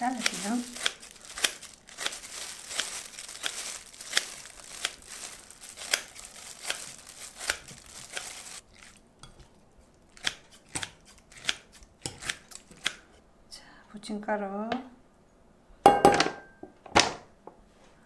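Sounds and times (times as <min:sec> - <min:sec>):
wet leaves rustling: 0:00.0 - 0:09.0
scissors snipping cabbage: 0:00.0 - 0:13.1.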